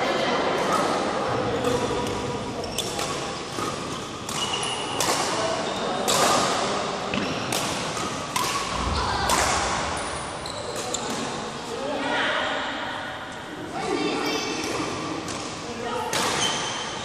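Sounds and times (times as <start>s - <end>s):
rackets hitting shuttlecock: 0.5s - 11.4s, 14.6s - 17.0s
court shoes squeaking: 0.6s - 11.8s, 14.1s - 17.0s.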